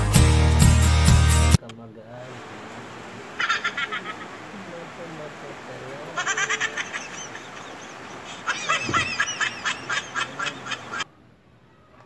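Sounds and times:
bird chirping: 0:06.1 - 0:11.0.

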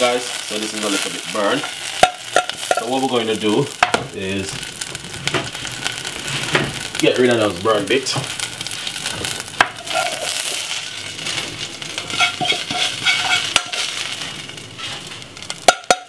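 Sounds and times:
fat sizzling in a frying pan: 0:00.0 - 0:16.0
scraping a pan: 0:08.2 - 0:16.0.

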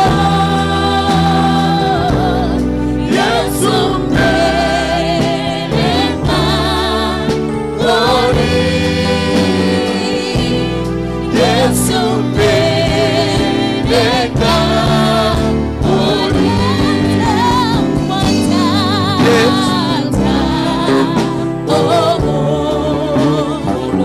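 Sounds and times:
backing singers: 0:00.0 - 0:24.0
electronic keyboard chords: 0:00.0 - 0:24.0
woman singing with vibrato: 0:16.0 - 0:24.0.

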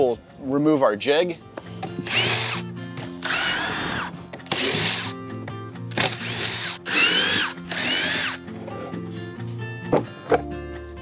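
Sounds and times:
background music: 0:00.0 - 0:11.0
cordless drill whining: 0:02.0 - 0:05.1, 0:05.9 - 0:08.4.

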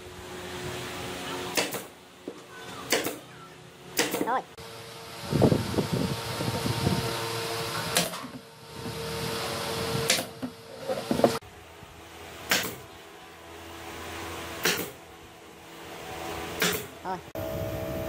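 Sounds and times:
pneumatic nailer shots: 0:01.5 - 0:02.0, 0:02.8 - 0:03.3, 0:03.9 - 0:04.4, 0:07.3 - 0:11.4, 0:12.4 - 0:12.9, 0:14.4 - 0:15.0, 0:16.5 - 0:17.0.

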